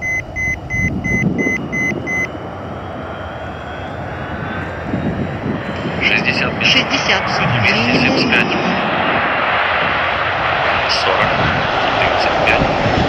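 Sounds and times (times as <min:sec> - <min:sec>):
high electronic beeps: 0:00.0 - 0:02.3
faint rising whine: 0:00.0 - 0:12.2
jet engines rumbling: 0:00.0 - 0:13.0.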